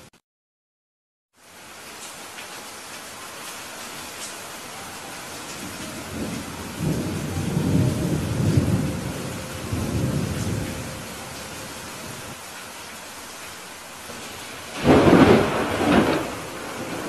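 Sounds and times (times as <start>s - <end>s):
steady rain: 1.3s - 17.0s
rolling thunder: 5.6s - 12.4s, 14.2s - 17.0s.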